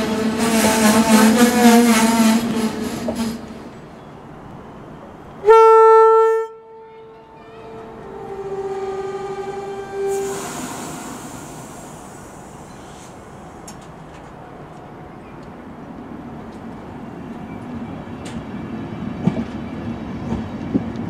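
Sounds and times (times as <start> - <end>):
train horn blast: 0.4 - 3.5, 5.4 - 11.8
air hissing: 10.1 - 13.8.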